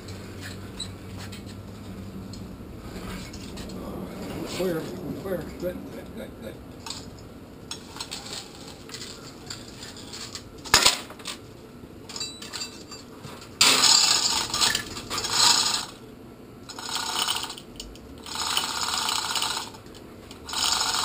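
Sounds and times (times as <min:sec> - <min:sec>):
chain hoist rattling: 0:12.1 - 0:16.0, 0:16.7 - 0:21.0.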